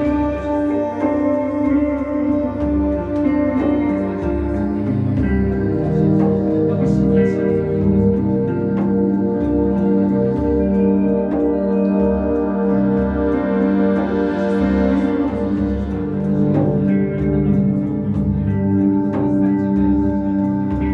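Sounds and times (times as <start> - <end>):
guitar: 0.0 - 20.9
live ambient band music: 0.0 - 20.9.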